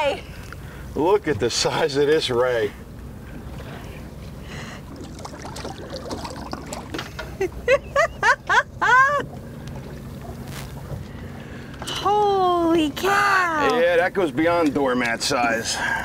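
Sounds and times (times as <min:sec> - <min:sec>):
wind: 0:00.0 - 0:16.0
boat engine idling: 0:00.2 - 0:16.0
water noise: 0:01.4 - 0:13.6.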